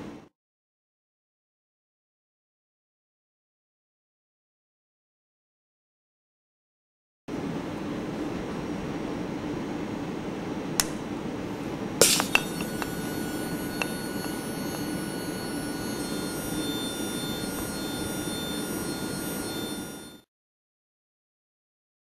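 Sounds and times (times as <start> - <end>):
low hum: 12.0 - 20.2
electric buzzer whine: 12.0 - 20.3.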